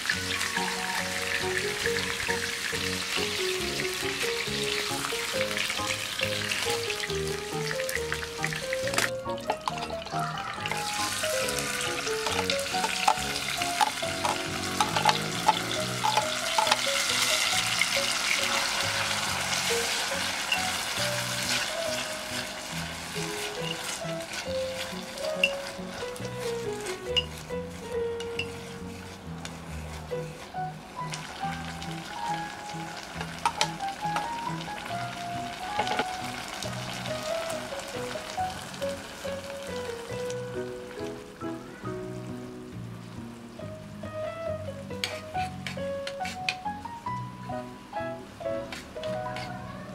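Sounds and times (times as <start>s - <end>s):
chopsticks stirring: 0.0s - 34.7s, 35.7s - 36.1s, 45.0s - 46.6s
soft background music: 0.0s - 49.9s
tomatoes sizzling in hot oil: 0.0s - 49.9s
utensil clicking against pot: 12.2s - 17.0s, 33.2s - 34.3s.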